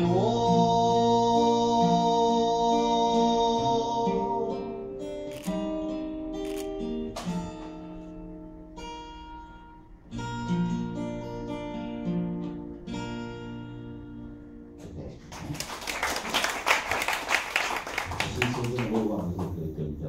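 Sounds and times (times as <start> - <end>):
acoustic guitar strumming chords: 0.0 - 15.1
audience applauding: 15.2 - 19.7.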